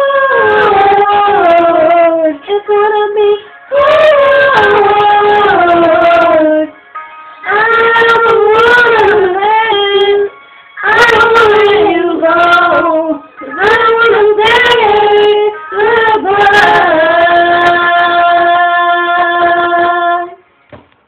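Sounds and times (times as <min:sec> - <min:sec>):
woman and girl singing together: 0:00.0 - 0:06.8, 0:07.4 - 0:20.4.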